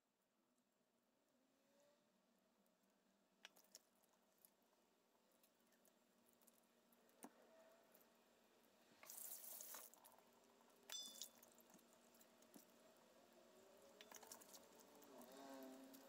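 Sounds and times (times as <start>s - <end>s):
short hiss: 9.0s - 9.9s
light ringing clink: 10.9s - 11.5s.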